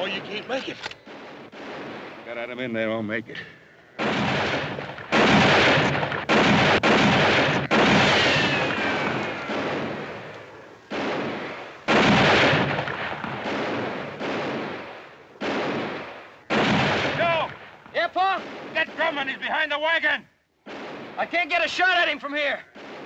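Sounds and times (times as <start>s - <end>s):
rifle shots echoing: 0.0s - 2.9s, 3.7s - 19.9s, 20.6s - 23.0s
bullet ricochet whine: 4.2s - 10.3s.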